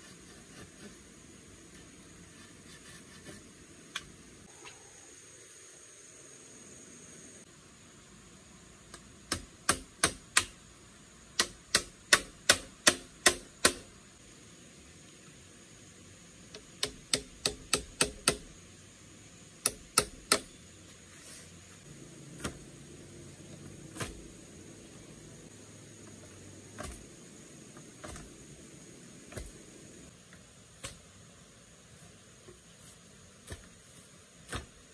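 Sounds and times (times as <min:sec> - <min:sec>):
tool knocking on bamboo poles: 0:11.4 - 0:13.9, 0:16.6 - 0:18.5, 0:19.6 - 0:20.5.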